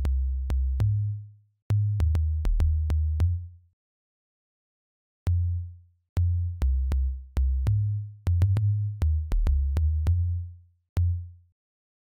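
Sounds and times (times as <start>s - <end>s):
deep synth bass line: 6.3s - 10.4s.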